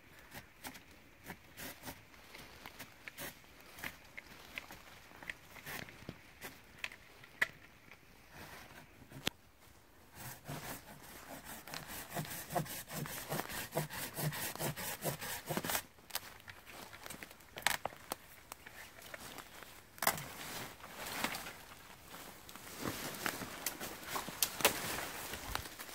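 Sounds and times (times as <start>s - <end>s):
saw cutting through wood: 10.2s - 15.8s.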